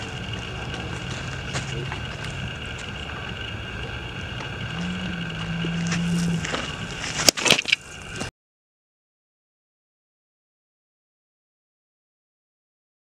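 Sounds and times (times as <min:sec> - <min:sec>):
low hum: 0:00.0 - 0:08.3.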